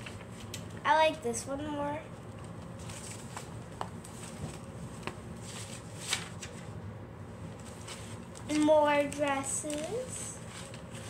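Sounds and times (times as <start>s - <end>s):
sketchbook pages rustling: 2.3s - 6.7s, 7.6s - 11.0s.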